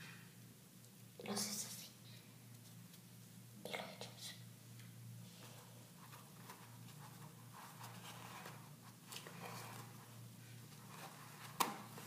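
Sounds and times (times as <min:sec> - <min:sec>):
low steady hum: 0:00.0 - 0:12.0
soft wet handling rustles: 0:04.7 - 0:12.0.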